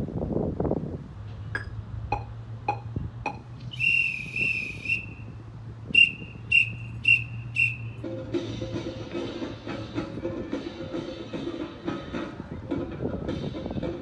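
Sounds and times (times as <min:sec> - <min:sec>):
whistle blasts: 0:03.7 - 0:05.3, 0:05.9 - 0:08.0.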